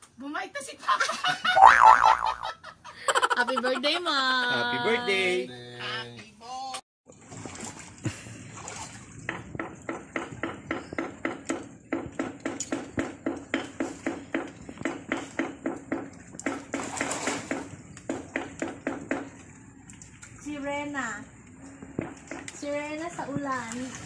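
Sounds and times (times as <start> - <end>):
swimmer kicks splashing water: 7.1 - 12.2.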